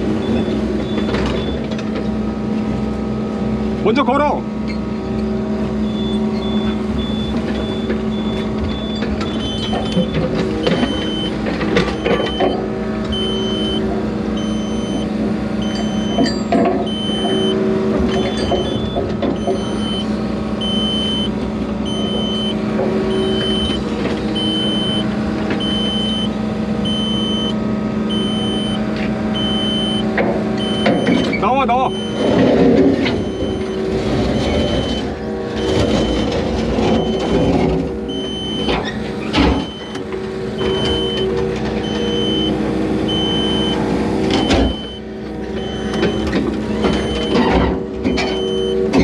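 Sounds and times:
excavator diesel engine running: 0:00.0 - 0:49.0
electronic alarm beeping: 0:05.8 - 0:10.2, 0:10.8 - 0:11.4, 0:12.0 - 0:17.6, 0:18.2 - 0:32.4, 0:33.2 - 0:37.5, 0:38.1 - 0:38.8, 0:39.6 - 0:40.0, 0:40.6 - 0:48.9.

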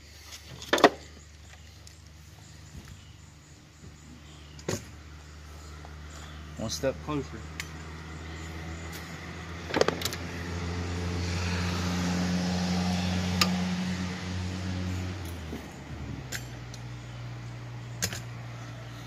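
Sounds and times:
engine humming: 0:00.0 - 0:19.0
sharp metallic clicks: 0:07.5 - 0:07.8.

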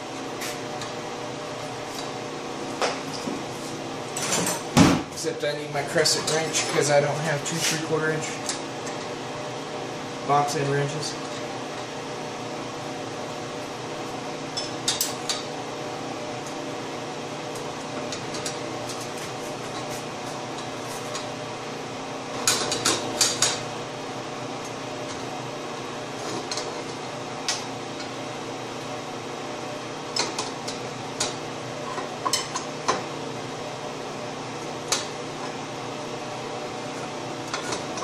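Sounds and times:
steady background hum: 0:00.0 - 0:38.0.

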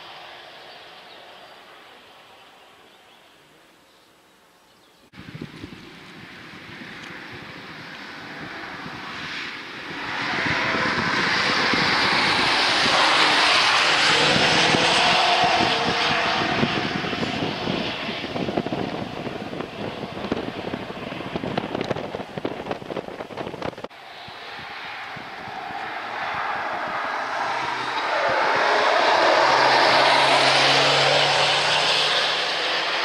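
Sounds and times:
cars driving past: 0:05.2 - 0:22.5, 0:23.9 - 0:33.0.

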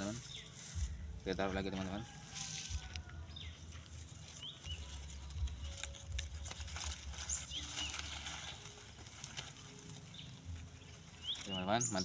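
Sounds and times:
small bird chirping: 0:00.0 - 0:01.2, 0:03.1 - 0:06.4, 0:07.1 - 0:08.9, 0:09.7 - 0:12.0
dry grass and fronds rustling: 0:00.0 - 0:12.0.

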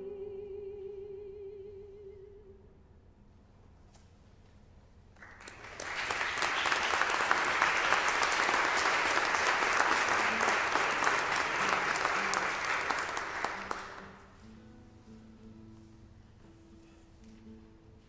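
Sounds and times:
audience applauding: 0:05.2 - 0:14.3.

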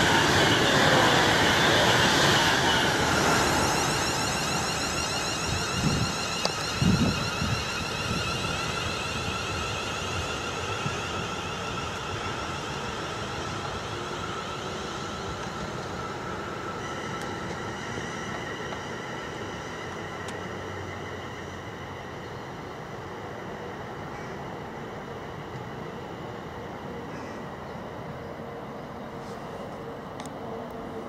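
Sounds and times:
electric train motor whine: 0:00.0 - 0:23.6
train rolling rumble: 0:00.0 - 0:31.0.

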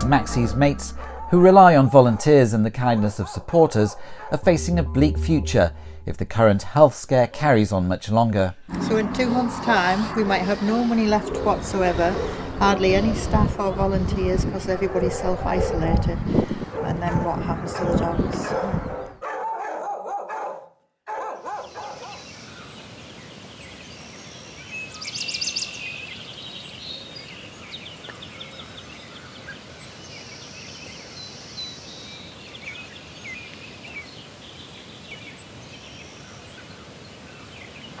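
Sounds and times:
birds singing and chirping: 0:21.4 - 0:38.0.

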